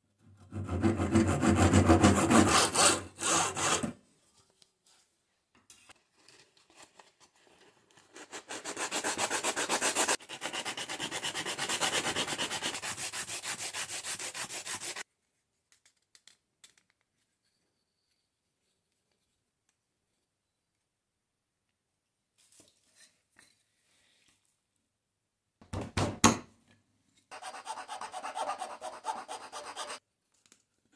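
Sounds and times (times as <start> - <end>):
sandpaper rubbing on wood: 8.4 - 15.0, 27.3 - 30.0.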